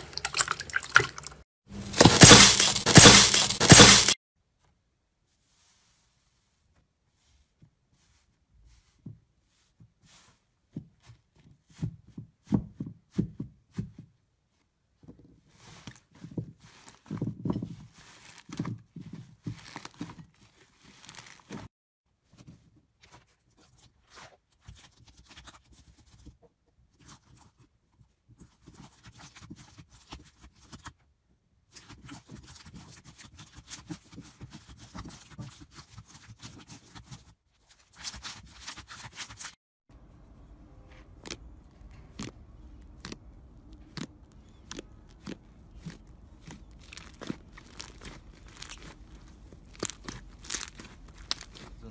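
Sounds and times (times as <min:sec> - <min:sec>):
slime squelching and popping: 0:01.9 - 0:04.2, 0:41.1 - 0:51.9.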